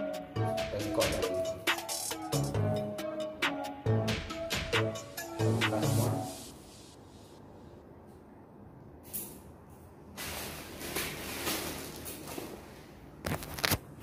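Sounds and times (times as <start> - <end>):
rustling of plastic packaging: 10.2 - 13.9.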